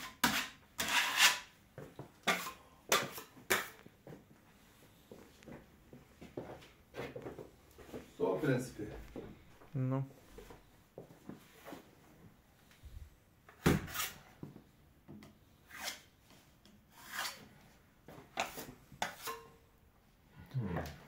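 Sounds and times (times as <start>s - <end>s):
rubbing and scraping strokes: 16.9s - 17.6s.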